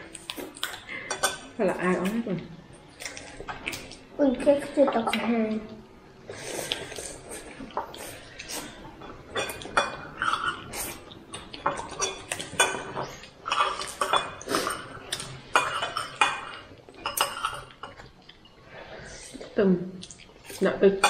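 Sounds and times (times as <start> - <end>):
dishes and cutlery clinking: 0.4 - 2.2, 6.7 - 18.6.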